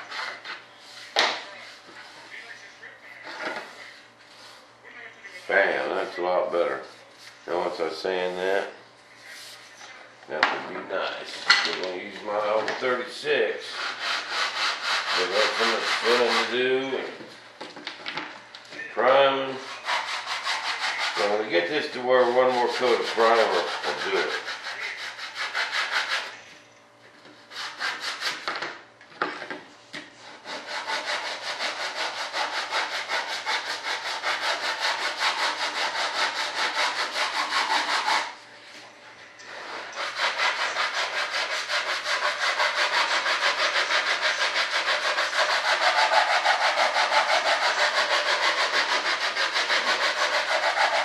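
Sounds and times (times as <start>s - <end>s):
sandpaper rubbing back and forth: 0.0s - 2.4s, 12.1s - 17.2s, 19.5s - 26.4s, 27.4s - 28.5s, 30.2s - 38.4s, 39.5s - 51.0s.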